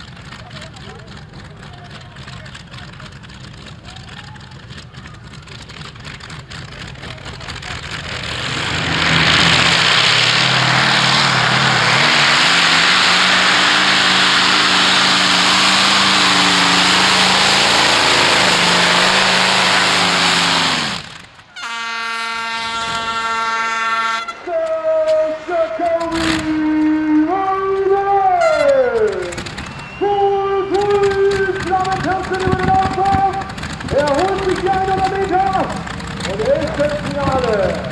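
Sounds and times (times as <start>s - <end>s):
tractor engine at full power: 0.0s - 37.9s
air horn: 21.5s - 24.5s, 28.3s - 28.9s.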